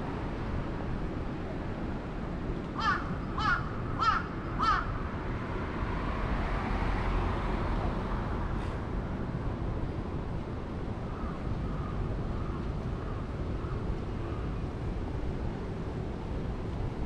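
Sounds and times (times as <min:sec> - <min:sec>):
low hum of city traffic: 0:00.0 - 0:17.0
crow cawing: 0:02.8 - 0:04.9.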